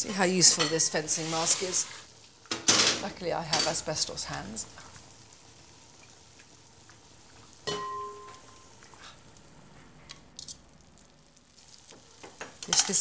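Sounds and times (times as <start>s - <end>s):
kitchenware clink: 7.6s - 8.6s.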